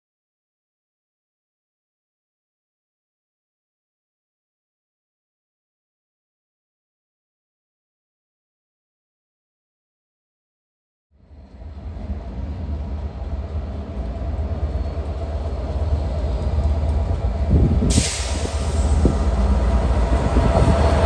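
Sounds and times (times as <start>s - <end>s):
diesel locomotive engine drone: 11.1s - 21.0s
train hiss: 13.9s - 21.0s.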